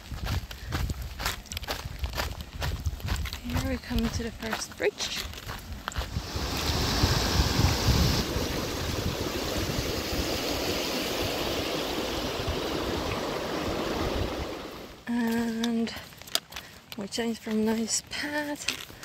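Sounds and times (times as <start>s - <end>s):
river rushing over rocks: 6.1s - 15.0s.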